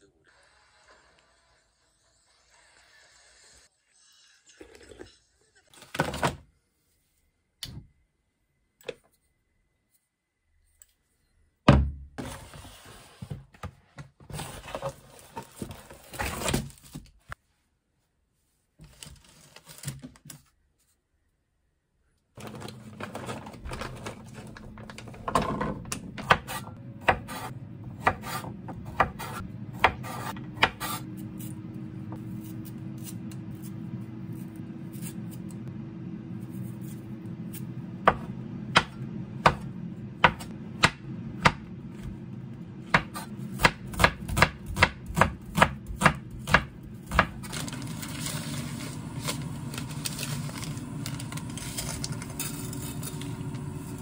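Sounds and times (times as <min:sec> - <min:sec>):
steady low hum: 0:23.6 - 0:54.0
knife chopping on wooden board: 0:26.2 - 0:31.0, 0:42.9 - 0:47.4.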